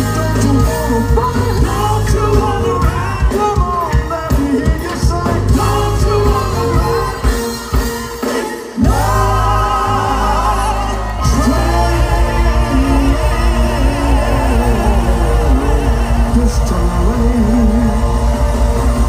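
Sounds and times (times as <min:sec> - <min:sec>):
soul band playing: 0:00.0 - 0:19.0
group singing: 0:08.4 - 0:19.0.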